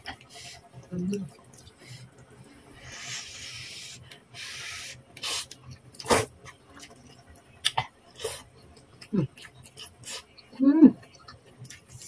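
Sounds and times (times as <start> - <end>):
person slurping noodles: 2.8 - 6.3.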